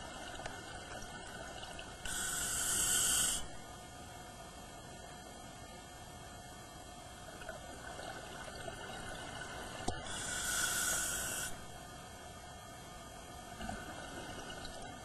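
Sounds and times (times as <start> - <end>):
hissing regulator breath: 2.1 - 3.5, 10.0 - 11.7
underwater bubbling: 7.3 - 11.5.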